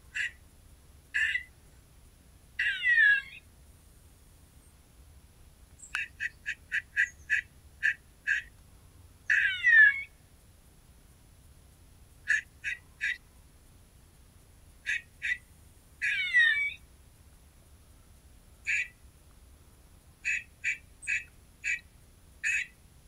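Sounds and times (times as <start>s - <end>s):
harsh animal calls: 0.1s - 0.4s, 1.2s - 1.5s, 2.6s - 3.4s, 6.0s - 8.5s, 9.3s - 10.1s, 12.3s - 13.2s, 14.8s - 15.4s, 16.0s - 16.8s, 18.6s - 19.0s, 20.2s - 22.8s
long calls falling in pitch: 2.6s - 3.4s.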